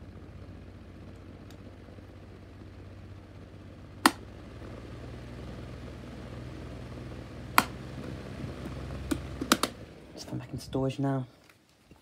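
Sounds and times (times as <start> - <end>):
desk fan motor humming: 0.0 - 11.3
sharp clicks: 9.1 - 9.8.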